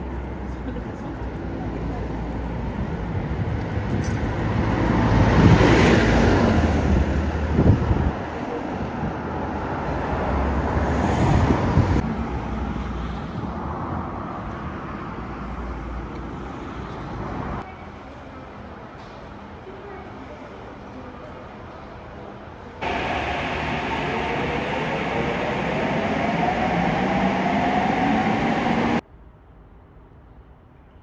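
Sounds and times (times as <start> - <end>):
bus passing: 0.0 - 17.6, 22.8 - 29.0
car passing: 22.8 - 29.0.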